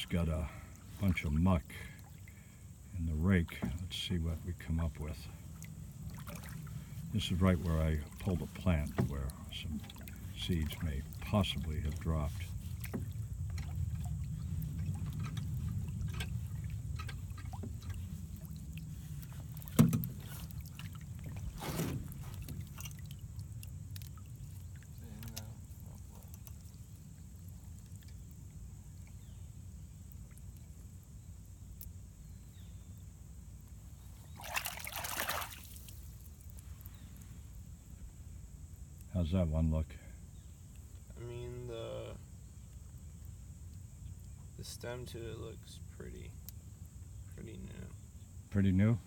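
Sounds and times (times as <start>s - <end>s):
low steady rumble: 0.0s - 34.4s
water trickling and sloshing: 0.0s - 39.4s.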